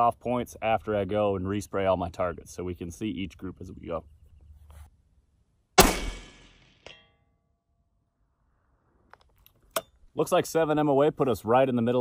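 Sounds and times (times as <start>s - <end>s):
rifle shot: 5.8s - 6.9s
bullet striking steel target: 5.8s - 7.4s.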